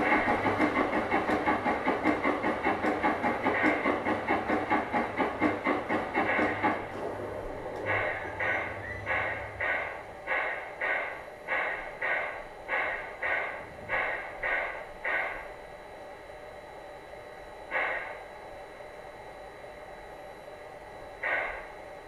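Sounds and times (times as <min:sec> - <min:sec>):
steam air pump puffing: 0:00.0 - 0:15.5, 0:17.7 - 0:18.2, 0:21.2 - 0:21.7.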